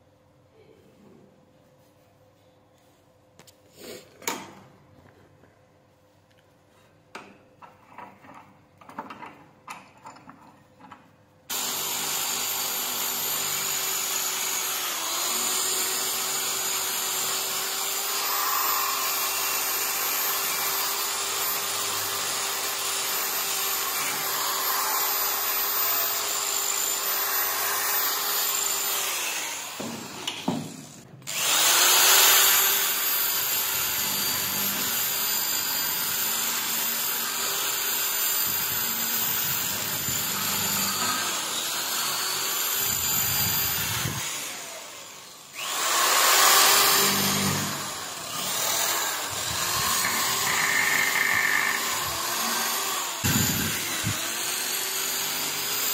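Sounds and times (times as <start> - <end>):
drill with wire brush scrubbing metal: 11.5 - 55.9.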